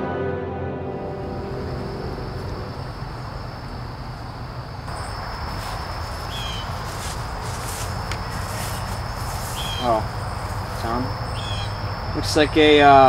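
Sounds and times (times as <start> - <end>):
high insect drone: 1.0 - 13.0
low rumble: 1.1 - 5.0.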